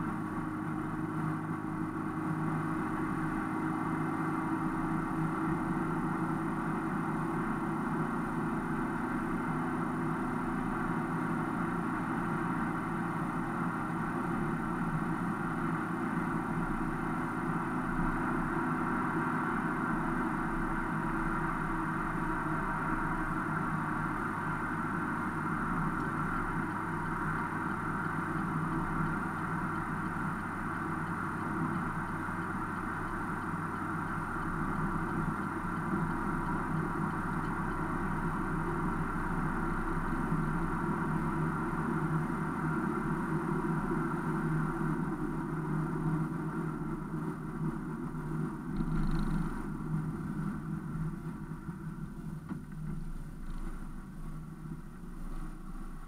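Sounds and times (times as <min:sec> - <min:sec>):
car engine and tyre road noise: 0:00.0 - 0:56.0.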